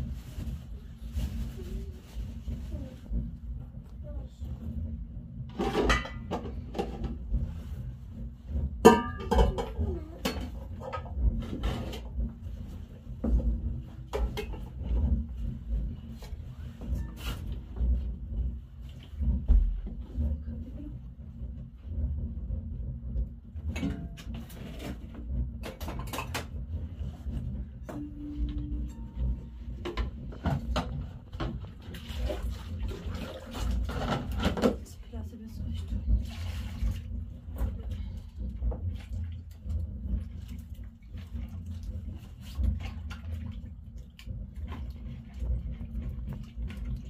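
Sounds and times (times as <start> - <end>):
low steady rumble: 0.0 - 47.0
pots and dishes clinking: 5.5 - 7.2, 8.8 - 12.1, 14.1 - 14.8, 23.7 - 25.0.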